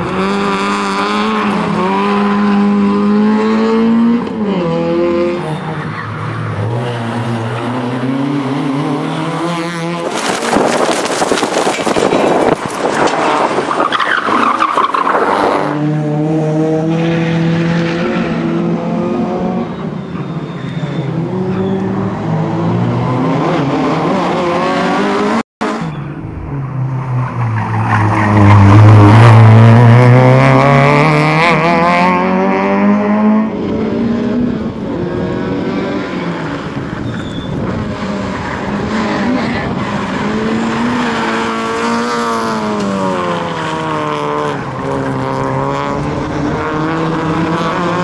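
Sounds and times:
rally car engine revving: 0:00.0 - 0:20.0, 0:20.7 - 0:48.0.

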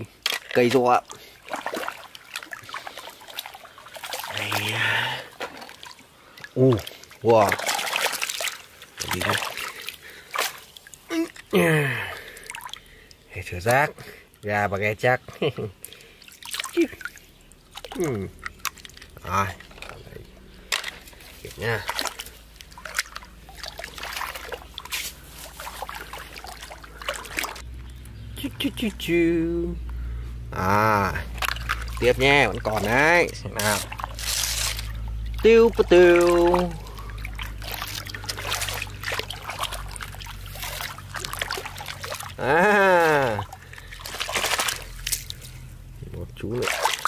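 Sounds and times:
water trickling: 0:00.0 - 0:47.0
hand splashing in shallow water: 0:01.4 - 0:11.0, 0:31.3 - 0:45.5, 0:46.6 - 0:47.0
person's drawn-out aah: 0:11.1 - 0:12.2.

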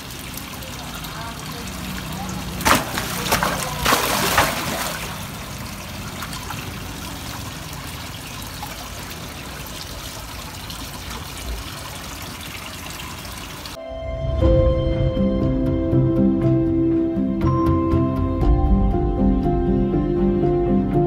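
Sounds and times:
fish splashing at water surface: 0:00.0 - 0:13.7
trickle of running water: 0:00.0 - 0:13.8.

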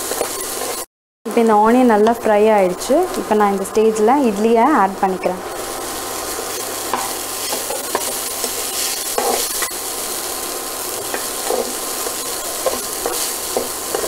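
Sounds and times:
frying sizzle: 0:00.0 - 0:14.0
spatula scraping and tapping pan: 0:06.9 - 0:09.8, 0:11.0 - 0:14.0.

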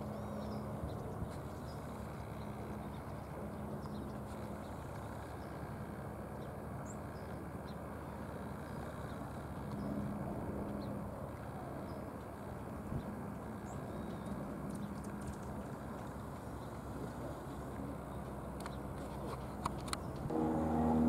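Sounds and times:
faint droning hum: 0:00.0 - 0:21.0
outdoor background rumble: 0:00.0 - 0:21.0.

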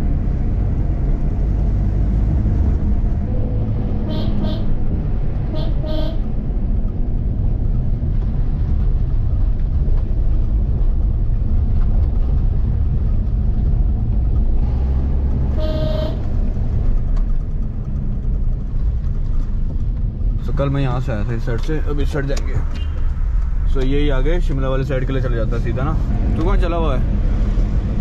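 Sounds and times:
car engine rumble: 0:00.0 - 0:28.0
road noise: 0:00.0 - 0:28.0
car horn honks: 0:04.0 - 0:04.8, 0:05.5 - 0:06.2, 0:15.5 - 0:16.3.

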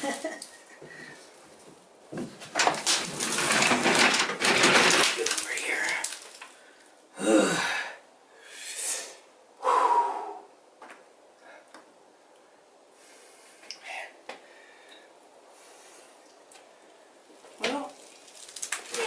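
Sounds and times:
man breathing hard: 0:00.8 - 0:01.3, 0:06.6 - 0:10.6, 0:12.9 - 0:16.2
small movements: 0:15.7 - 0:19.0.

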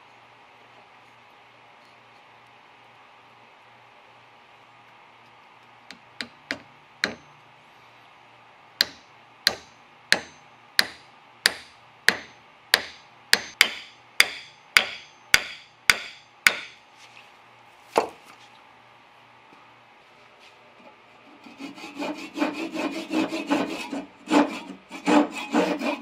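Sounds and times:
hammer striking metal tool into wood: 0:06.2 - 0:07.3, 0:08.8 - 0:16.8.

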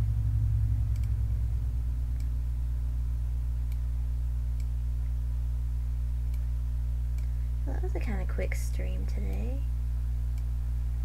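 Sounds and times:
low hum: 0:00.0 - 0:11.0
computer mouse clicks: 0:00.9 - 0:01.2, 0:03.7 - 0:03.9, 0:04.6 - 0:04.8, 0:06.3 - 0:06.5.

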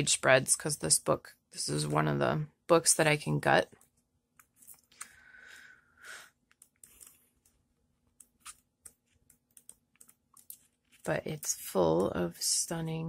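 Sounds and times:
book pages turning: 0:08.2 - 0:09.5.

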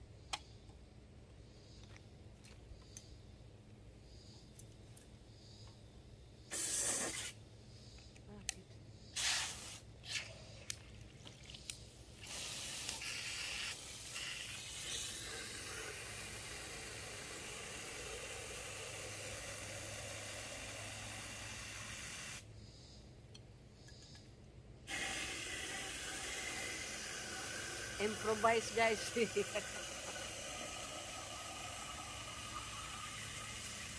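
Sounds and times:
hose water spraying into cans: 0:06.5 - 0:07.4, 0:09.2 - 0:22.5, 0:24.8 - 0:33.9.

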